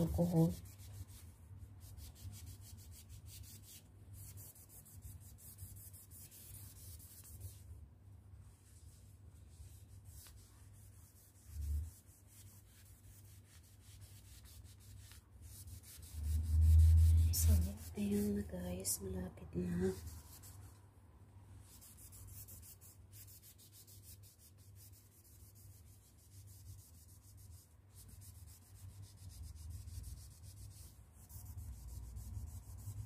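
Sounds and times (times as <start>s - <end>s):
cloth scrubbing on wall: 0.0s - 7.6s, 8.7s - 18.5s.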